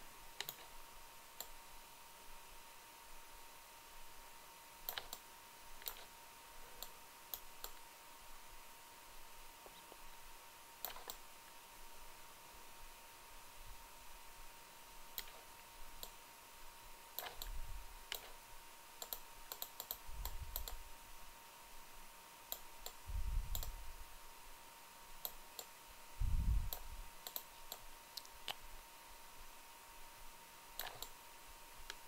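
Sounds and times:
faint steady whine: 0.0 - 32.0
computer mouse clicking: 0.4 - 0.7, 1.4 - 1.6, 4.8 - 5.2, 5.8 - 6.1, 6.8 - 7.8, 10.8 - 11.2, 15.1 - 15.4, 17.2 - 18.4, 19.0 - 20.8, 22.5 - 23.8, 25.2 - 25.7, 26.7 - 28.6, 30.8 - 31.2.

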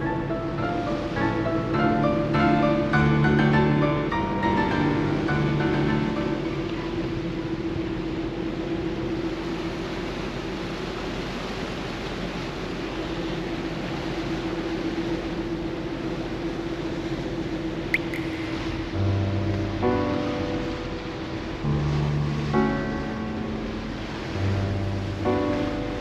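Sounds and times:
churned water from ship's wake: 0.0 - 26.0
ship hum: 0.0 - 26.0
wind rushing: 17.9 - 22.6.

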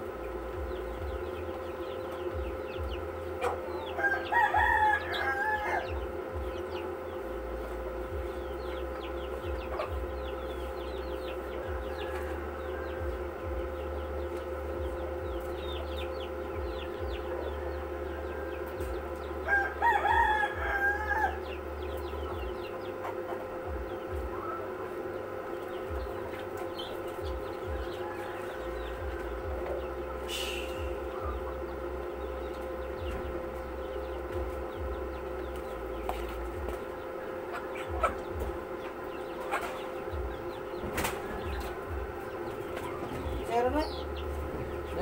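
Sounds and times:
rooster crowing: 3.4 - 7.3, 11.0 - 31.6.

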